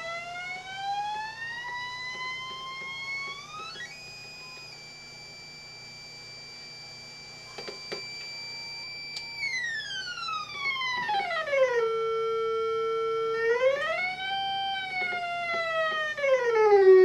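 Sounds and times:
electronic beep tone gliding down: 0.0 - 11.3.

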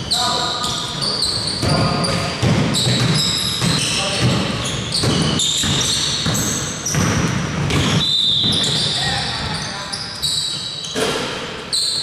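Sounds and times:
sneakers squeaking: 0.0 - 12.0
basketball bouncing on court: 0.6 - 9.7.

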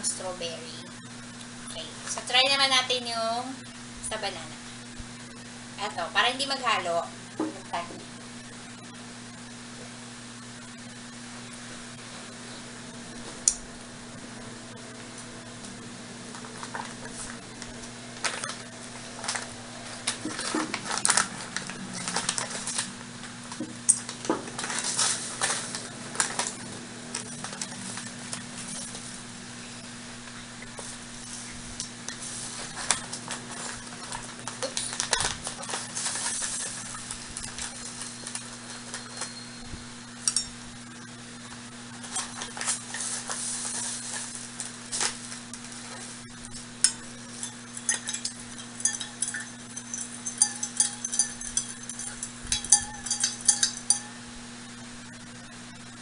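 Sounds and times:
steady low hum: 0.0 - 56.0
plastic pouch crinkling: 16.3 - 23.0, 23.9 - 29.2, 32.2 - 39.3
metal spoon scraping against glass: 46.8 - 54.2.

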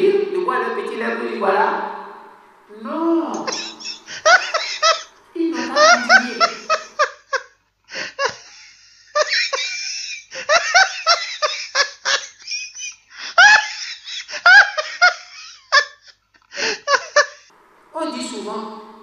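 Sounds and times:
loud choppy laughter: 3.4 - 17.5.

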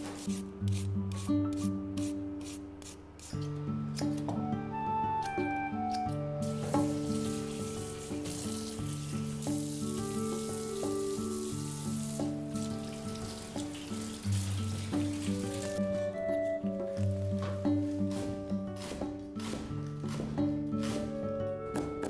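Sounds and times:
background music sustained notes: 0.0 - 22.0
tap water running and splashing: 6.6 - 15.8.

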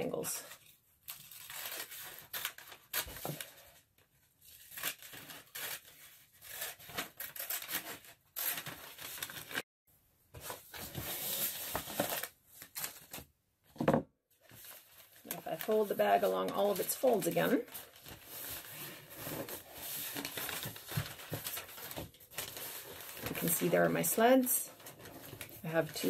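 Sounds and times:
stiff paper crinkling: 4.5 - 9.6, 14.4 - 26.0.

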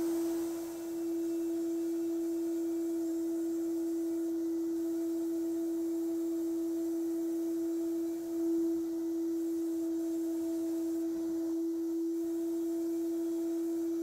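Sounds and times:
sandblasting gun whistling hiss: 0.0 - 4.4.

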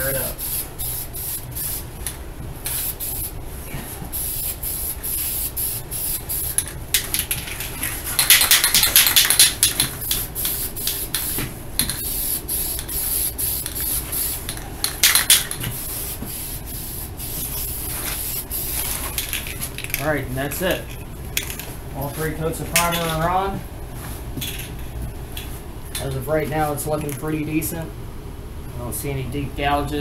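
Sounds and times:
aerosol spray can hissing: 2.7 - 3.4, 4.2 - 6.6, 8.2 - 14.5.

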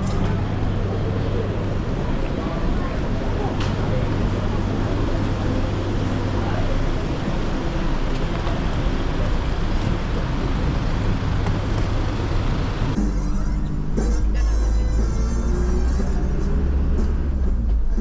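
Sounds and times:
cars passing slowly: 0.0 - 18.0
background music: 13.0 - 18.0.

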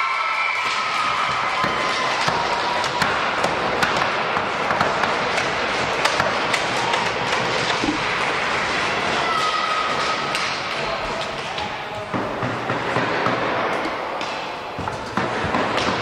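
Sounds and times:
crowd cheering voices: 0.0 - 12.2.

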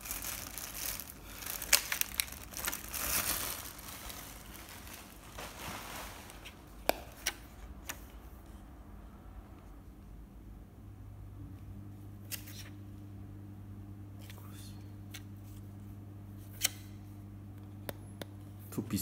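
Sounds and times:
plastic wrapping crinkling: 0.0 - 7.4.

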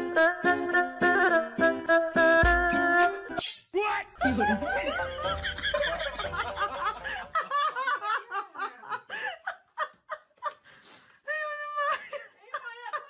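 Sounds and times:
human laughter: 4.2 - 10.6.

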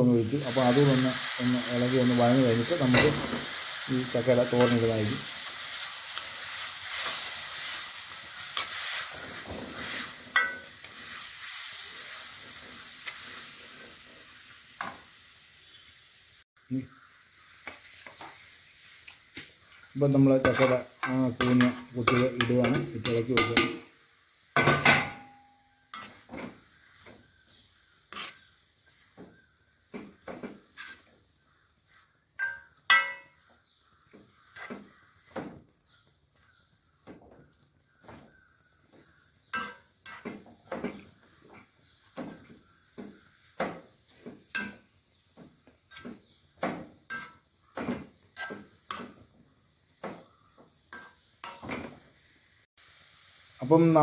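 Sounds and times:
spatula scraping in a pan: 0.4 - 15.1, 17.0 - 23.8, 24.4 - 35.6, 36.3 - 49.3, 50.0 - 52.4
spatula knocking on pan: 32.4 - 33.3.

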